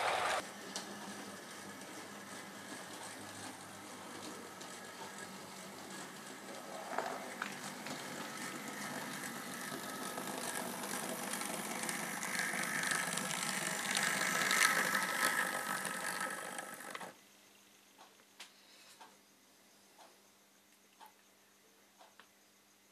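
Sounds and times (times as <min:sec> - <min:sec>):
model train running on track: 0:00.0 - 0:17.1
faint ticks: 0:18.0 - 0:19.2, 0:19.9 - 0:21.3, 0:21.9 - 0:22.4.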